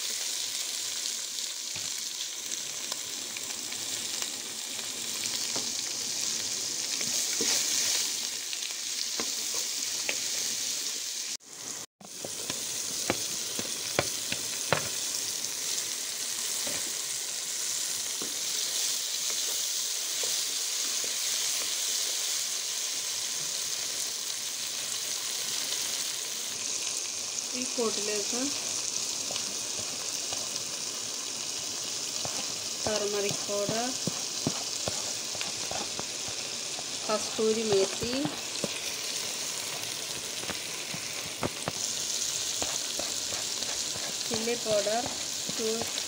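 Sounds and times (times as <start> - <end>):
vegetables sizzling in oil: 0.0 - 46.0
oil crackling: 12.0 - 46.0.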